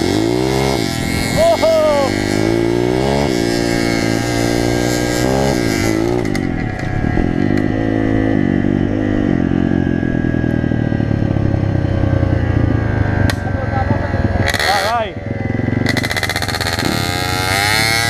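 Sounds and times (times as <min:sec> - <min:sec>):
motorbike engine revving: 0:00.0 - 0:18.0.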